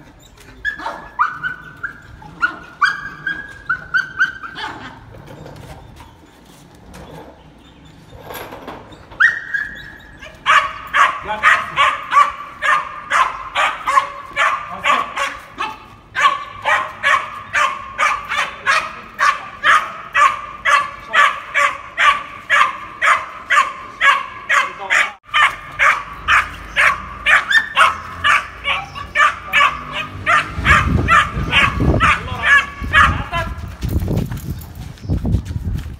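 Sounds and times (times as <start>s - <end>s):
puppy whining: 0.0s - 6.5s, 8.9s - 11.0s
puppy barking rapidly: 0.6s - 5.0s, 9.2s - 33.6s.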